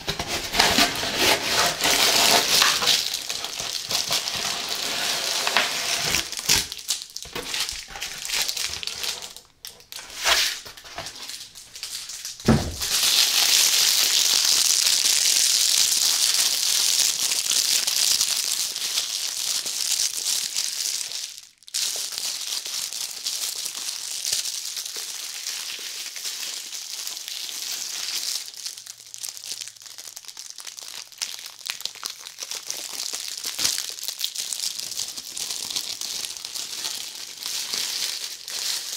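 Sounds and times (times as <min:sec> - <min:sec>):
cardboard box scraping and rustling: 0:00.0 - 0:02.9, 0:10.0 - 0:11.2
plastic wrap crinkling: 0:00.0 - 0:38.9
box thump: 0:12.4 - 0:12.9.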